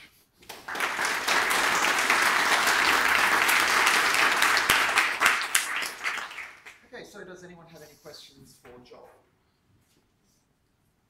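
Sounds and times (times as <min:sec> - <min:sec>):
audience applauding: 0:00.4 - 0:06.8.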